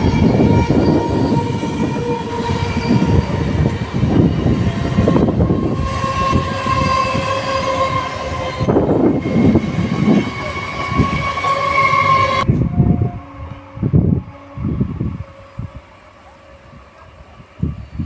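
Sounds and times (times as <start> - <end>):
train wheels clattering on rails: 0.0 - 12.5.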